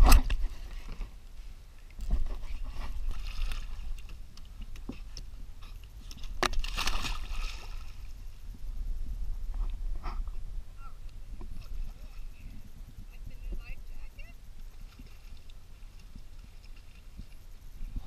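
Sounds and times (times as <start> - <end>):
lake water splashing: 2.4 - 8.4, 11.0 - 18.0.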